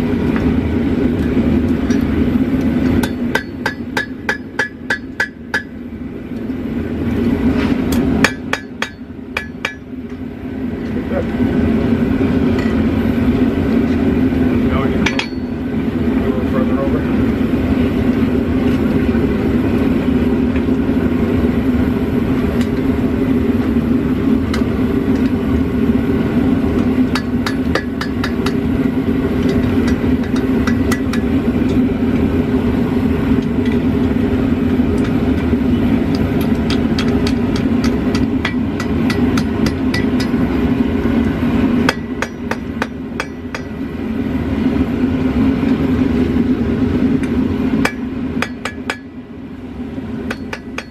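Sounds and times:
gas forge burner running: 0.0s - 50.9s
hammer striking steel on anvil: 1.2s - 5.8s, 7.9s - 10.2s, 15.0s - 15.6s, 27.1s - 28.7s, 29.4s - 31.8s, 36.1s - 40.5s, 41.8s - 43.8s, 47.2s - 49.2s, 50.2s - 50.9s.

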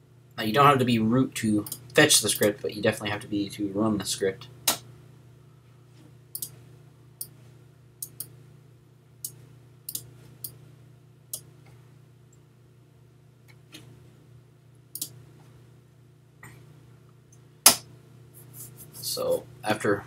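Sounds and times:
low steady hum: 0.0s - 20.0s
computer mouse clicks: 6.4s - 6.6s, 8.0s - 8.3s, 9.2s - 10.6s, 15.0s - 15.2s.

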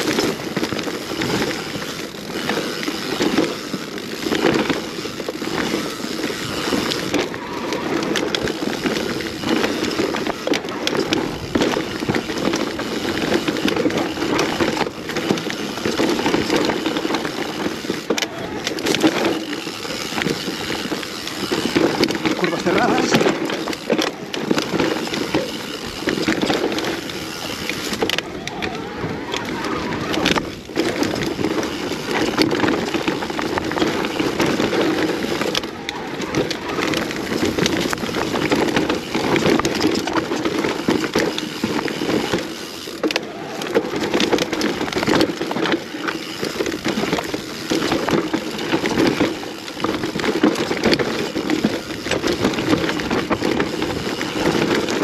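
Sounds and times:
bike rattling knocks: 0.0s - 55.0s
bike tyre rumble over dirt: 0.0s - 55.0s.

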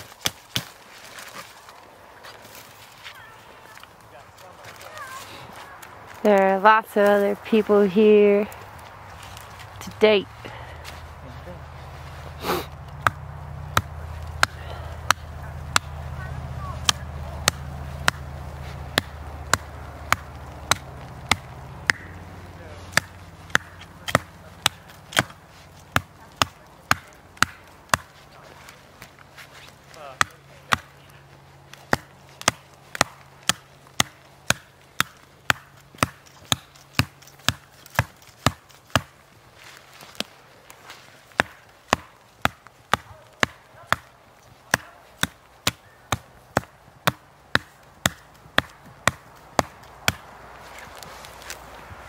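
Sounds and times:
axe chopping into tree trunk: 12.5s - 16.0s, 18.9s - 22.1s, 22.9s - 28.1s, 31.8s - 39.2s, 44.7s - 50.3s.

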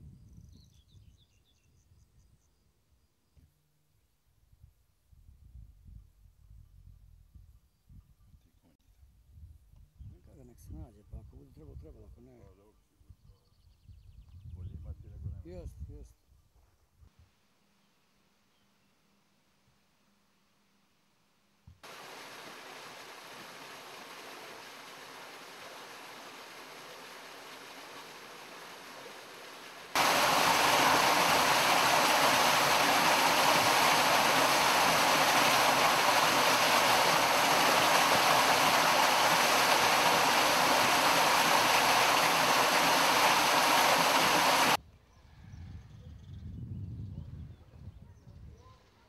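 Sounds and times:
rushing water: 21.8s - 44.8s.

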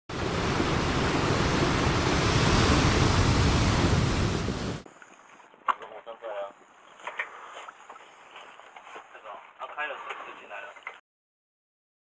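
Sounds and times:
rushing noise like surf: 0.1s - 4.9s.

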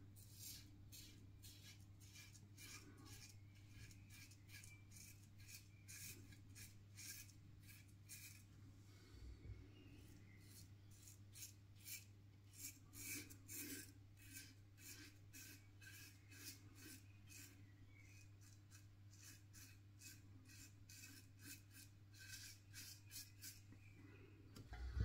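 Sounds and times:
razor scraping stubble: 10.4s - 23.6s.

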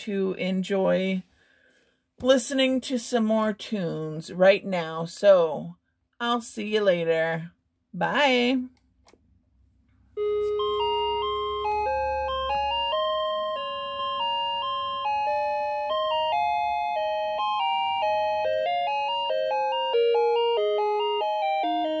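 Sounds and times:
alarm clock chiming melody: 10.2s - 22.0s.

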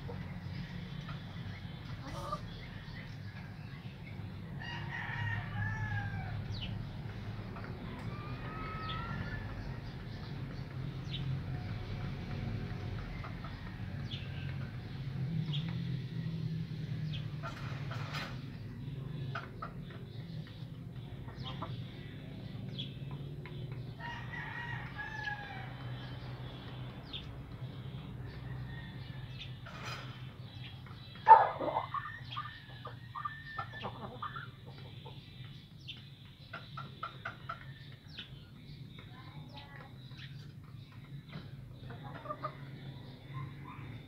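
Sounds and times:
rooster crowing: 4.6s - 6.4s, 8.0s - 9.7s, 24.0s - 25.7s.

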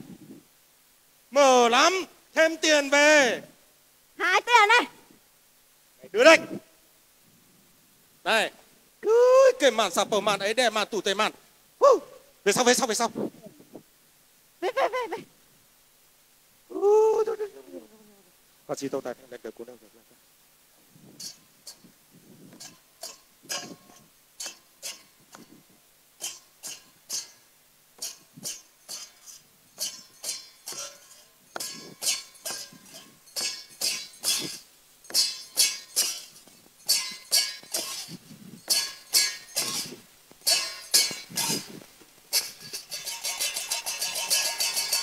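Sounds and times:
metal percussion clinking: 21.1s - 21.9s, 22.5s - 25.6s, 26.2s - 45.0s.

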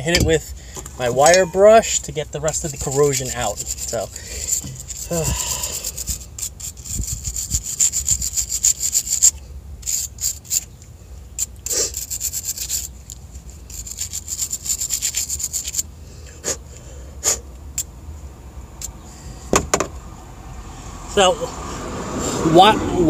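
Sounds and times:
wire brush scrubbing metal: 1.0s - 10.7s, 11.4s - 16.6s.

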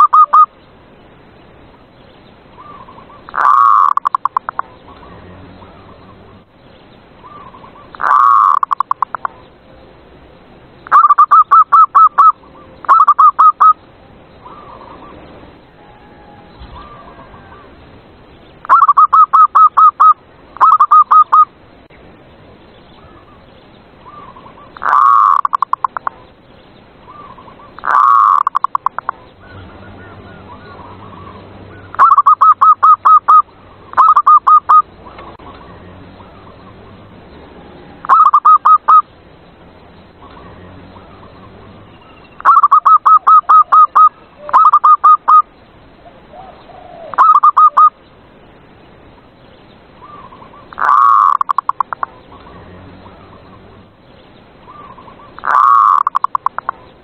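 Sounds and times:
dove cooing in staccato phrases: 2.6s - 6.5s, 7.2s - 9.5s, 24.0s - 26.3s, 27.1s - 39.1s, 42.4s - 48.0s, 50.0s - 53.8s, 54.6s - 56.9s.

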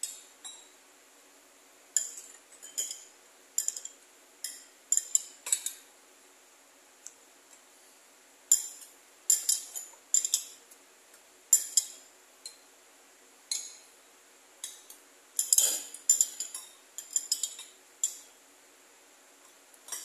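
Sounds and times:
metal spoon clinking against a bowl: 2.0s - 5.8s, 8.5s - 10.6s, 11.5s - 12.6s, 13.5s - 13.9s, 14.6s - 18.3s.

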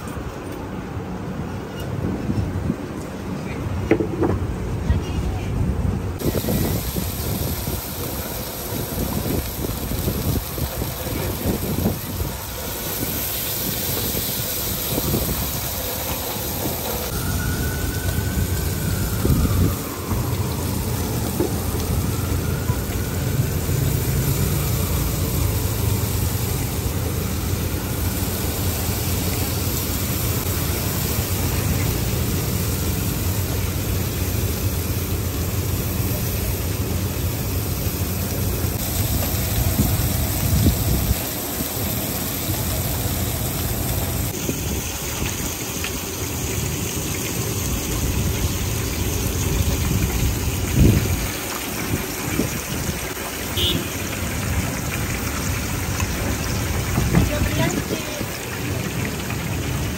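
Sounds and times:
gas burner low rumble: 6.2s - 53.1s
fish frying hiss: 6.2s - 59.9s.

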